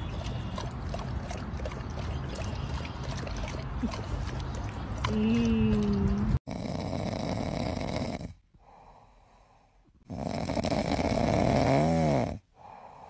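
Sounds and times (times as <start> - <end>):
cat snoring: 10.1 - 12.4.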